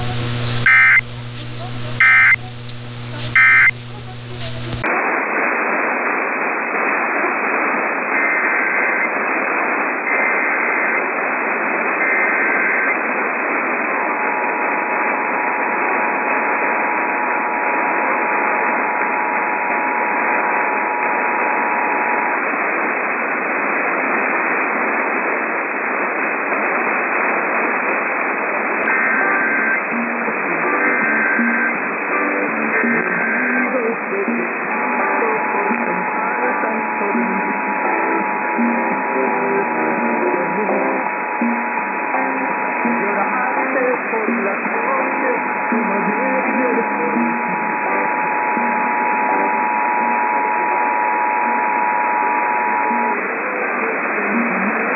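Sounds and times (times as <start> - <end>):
data tone bursts: 0.0 - 4.8, 34.3 - 54.9
two-tone attention signal: 0.0 - 4.8, 45.5 - 53.8
radio static: 0.0 - 54.9.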